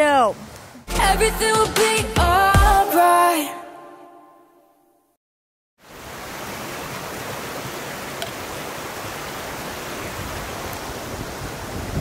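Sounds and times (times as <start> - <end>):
stream running over rocks: 5.8 - 12.0.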